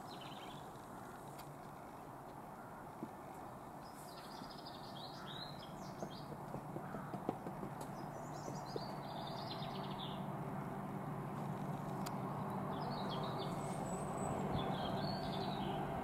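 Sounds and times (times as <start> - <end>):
diesel locomotive rumble: 8.5 - 16.0.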